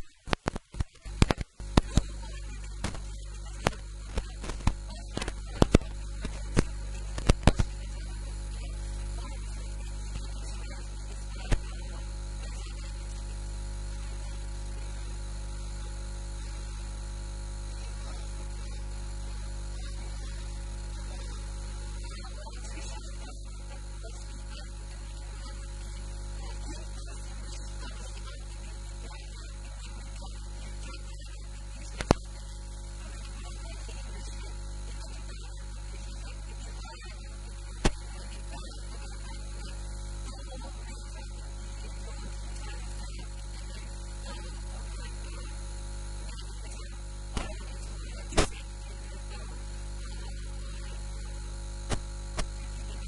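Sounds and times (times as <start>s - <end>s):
low mains hum: 0.0s - 53.0s
sharp clicks: 2.8s - 7.7s.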